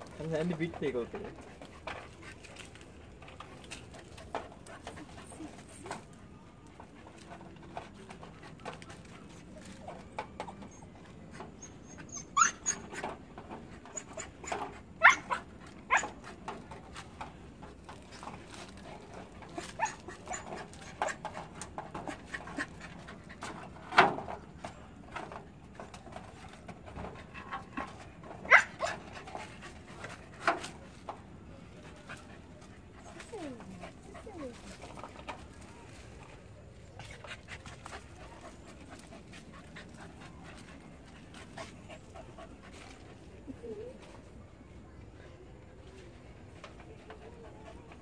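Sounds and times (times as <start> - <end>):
dog whining: 10.5 - 13.0, 43.5 - 44.1.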